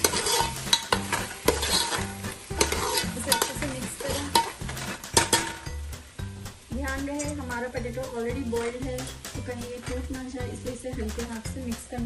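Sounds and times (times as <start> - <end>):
spoon scraping metal pot: 0.0 - 5.8
frying pan sizzle: 0.0 - 12.0.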